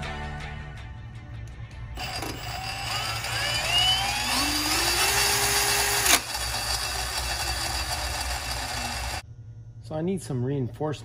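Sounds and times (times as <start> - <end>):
cordless drill motor whine: 2.0 - 9.2
drill trigger click: 2.0 - 9.2.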